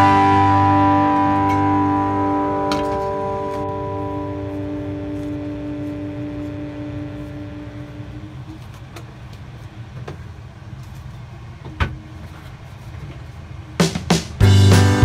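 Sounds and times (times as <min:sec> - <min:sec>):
humming tone with overtones: 0:00.0 - 0:09.1
low mechanical hum: 0:00.0 - 0:14.5.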